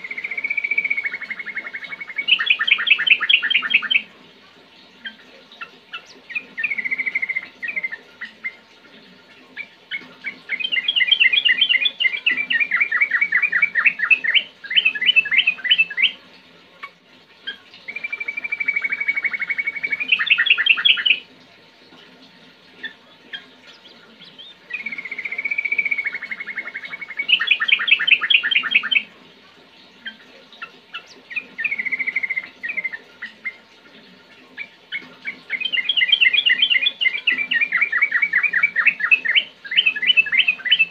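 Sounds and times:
bird singing whistled trills: 0.0 - 4.0, 6.3 - 8.3, 9.6 - 16.2, 17.9 - 21.2, 23.3 - 29.1, 31.0 - 33.6, 34.9 - 40.9.

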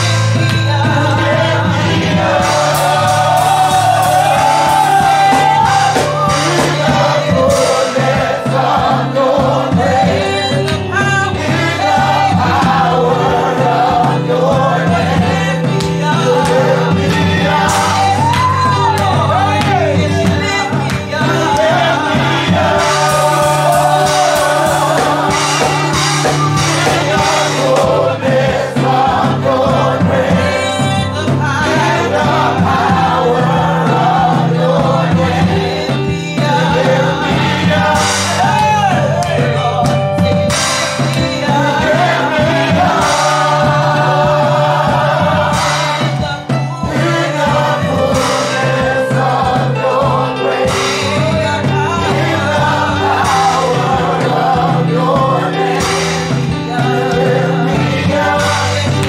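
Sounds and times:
bass line: 0.0 - 59.0
people singing gospel song: 0.0 - 59.0.

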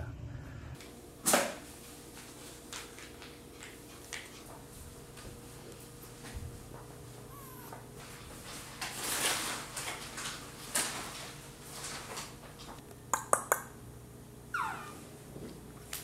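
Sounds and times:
rustling and handling noises: 1.6 - 12.8.

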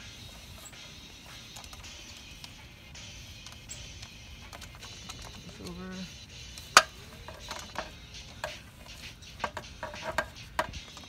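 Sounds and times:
golf club hitting ball: 6.7 - 8.6.

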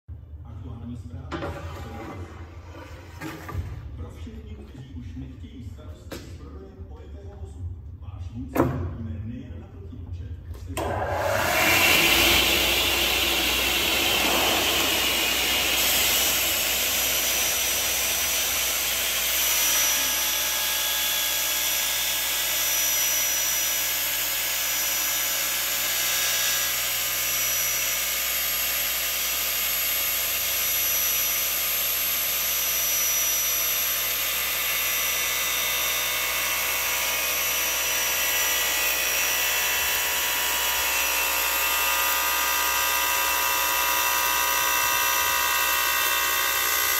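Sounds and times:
circular saw running: 10.8 - 46.9.

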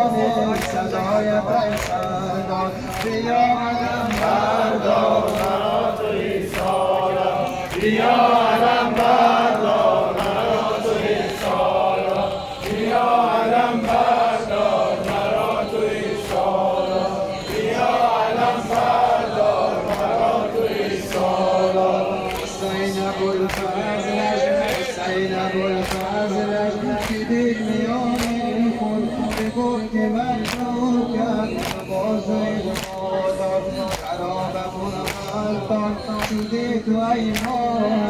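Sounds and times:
men chanting a lament: 0.0 - 38.0.

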